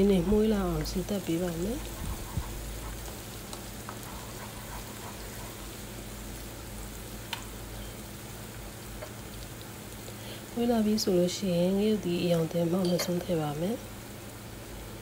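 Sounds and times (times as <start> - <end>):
aromatics sizzling in oil: 0.0 - 15.0
spatula tap: 7.3 - 7.5.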